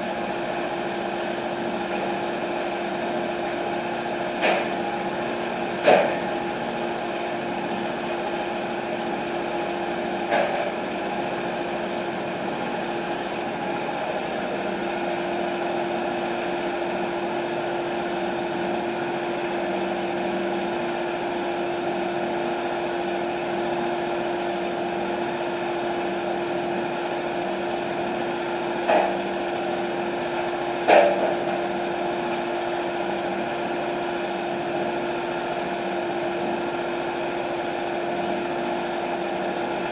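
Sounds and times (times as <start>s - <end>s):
sawmill engine running: 0.0s - 39.9s.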